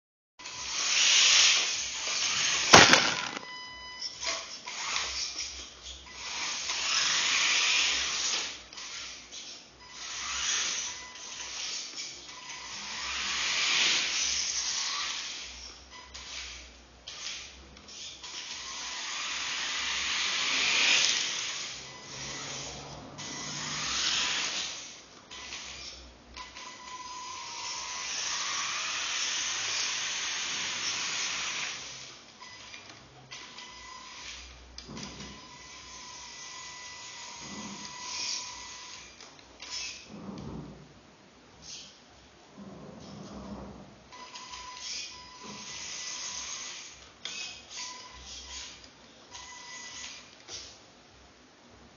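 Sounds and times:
electric motor whirring: 0.5s - 3.4s.

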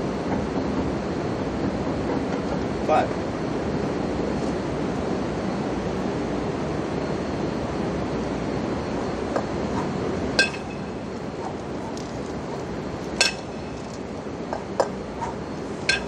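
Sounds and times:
city background rumble: 0.0s - 16.0s
kettlebells clinking together: 13.2s - 13.8s.

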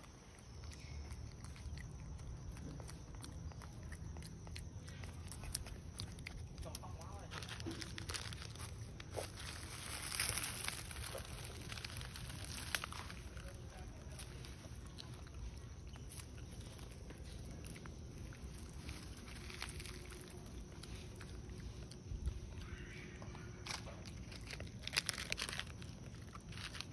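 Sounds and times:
foil packet crinkling: 5.1s - 20.8s, 23.6s - 26.9s.

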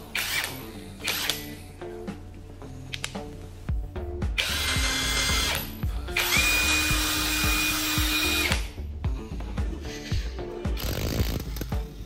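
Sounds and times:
impact wrench whining: 0.0s - 1.5s, 4.4s - 8.7s
background music with beat: 0.0s - 12.0s.

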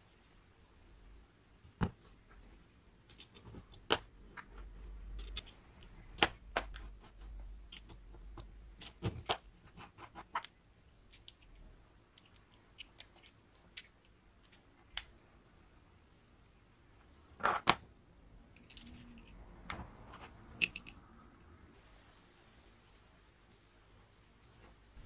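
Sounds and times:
metal parts clicking and tapping: 5.1s - 6.8s, 18.5s - 19.4s, 20.6s - 21.0s.

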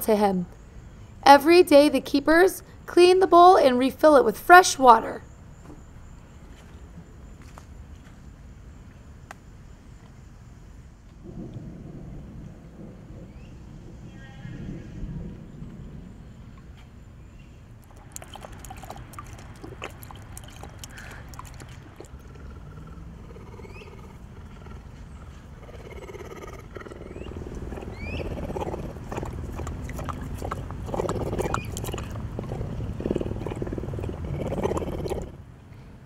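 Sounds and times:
animal lapping water from bowl: 17.8s - 23.0s, 27.3s - 35.4s.

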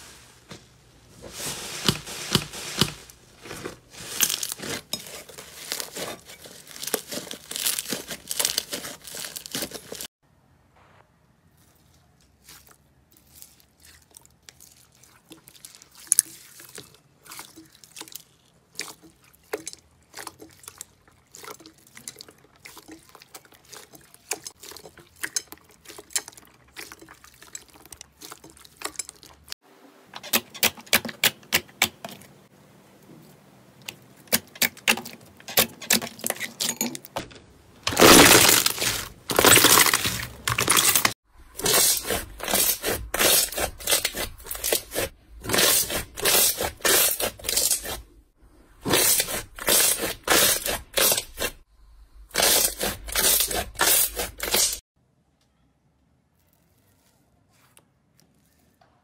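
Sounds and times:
slime squelching by hand: 1.0s - 10.1s, 11.5s - 29.5s, 37.8s - 51.7s.

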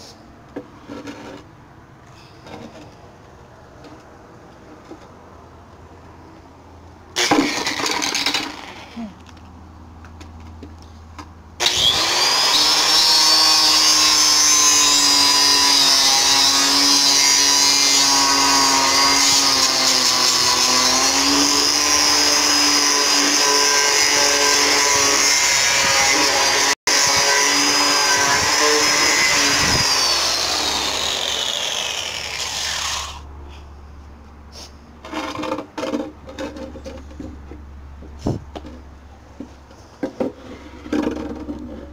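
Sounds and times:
angle grinder sanding wood: 11.6s - 33.3s.

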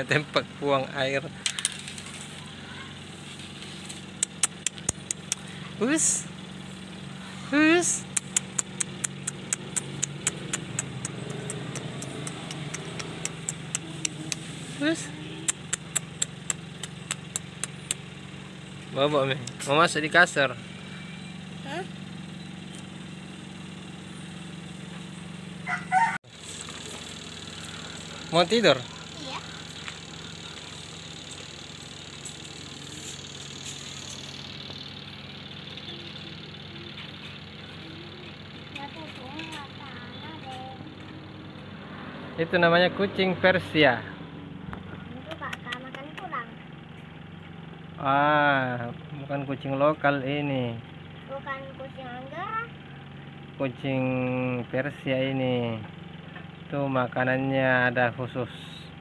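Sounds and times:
low hum: 0.0s - 48.0s
sharp mechanical ticks: 3.9s - 5.6s, 8.0s - 18.5s, 26.6s - 41.8s, 45.2s - 46.5s.

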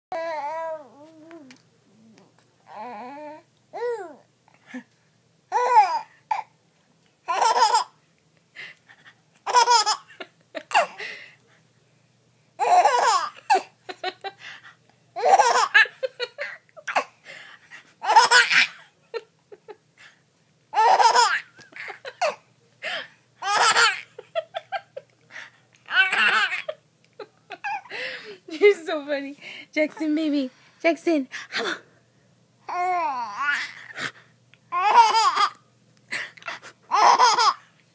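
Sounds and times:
baby laughing: 7.3s - 8.0s, 9.4s - 11.0s, 12.6s - 14.3s, 15.2s - 17.1s, 18.0s - 18.9s, 20.8s - 22.4s, 23.4s - 25.0s, 25.8s - 28.0s, 34.7s - 35.6s, 36.9s - 37.7s.

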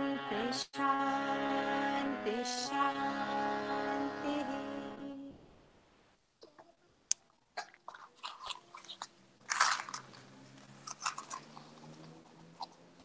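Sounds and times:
short clicks and crunchy rustles: 8.8s - 12.8s.

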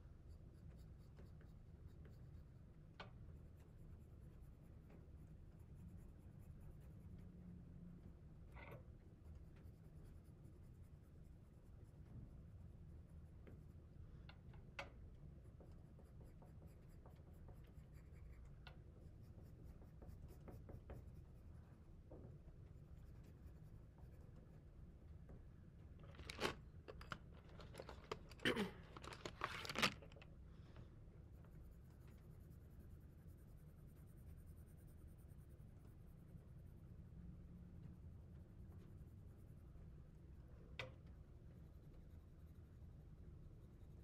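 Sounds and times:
marker scratching on paper: 15.5s - 21.6s, 22.6s - 24.7s.

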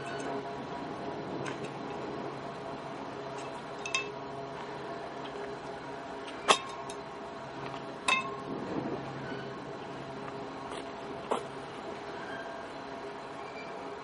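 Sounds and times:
train rolling across bridge: 0.0s - 14.0s
sharp metallic clanks: 3.8s - 4.2s, 6.3s - 7.0s, 8.0s - 8.4s.

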